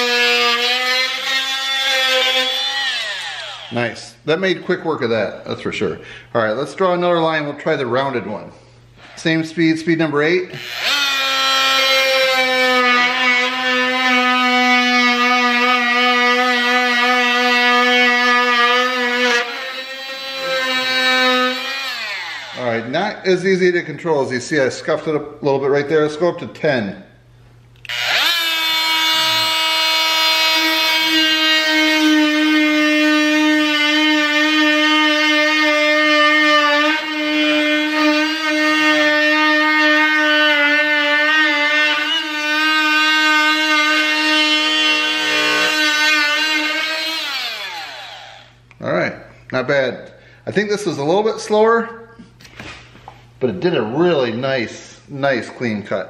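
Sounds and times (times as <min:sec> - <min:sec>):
oscillating multi-tool cutting wood: 0:00.0 - 0:03.9, 0:10.5 - 0:22.7, 0:27.9 - 0:48.6.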